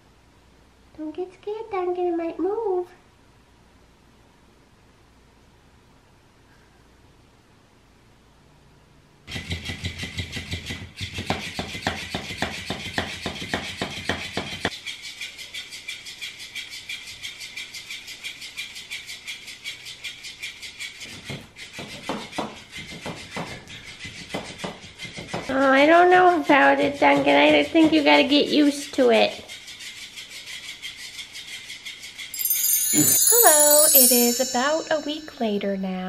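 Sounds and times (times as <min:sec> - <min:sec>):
toy motor buzzing: 0:29.3 - 0:35.2.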